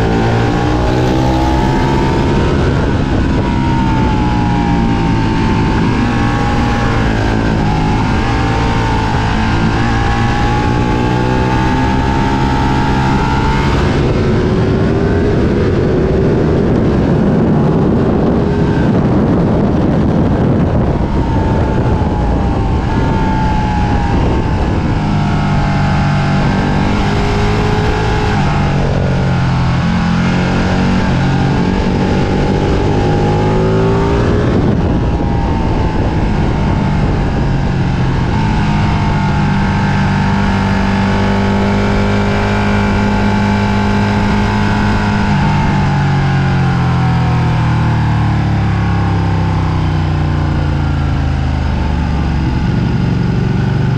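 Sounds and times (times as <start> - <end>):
motorcycle engine revving: 0.0 - 53.9
wind rush on microphone: 0.0 - 53.9.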